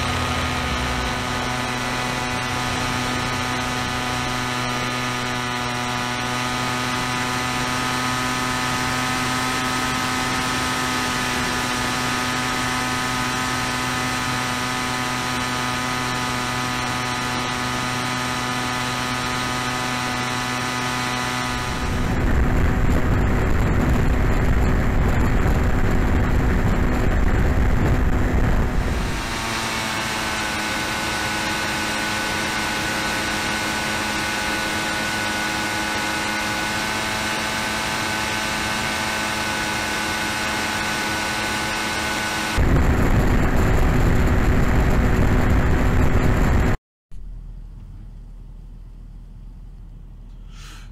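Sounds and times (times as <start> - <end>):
drone engine droning: 0.0 - 50.9
loud low rumble: 21.5 - 29.4, 42.6 - 50.5.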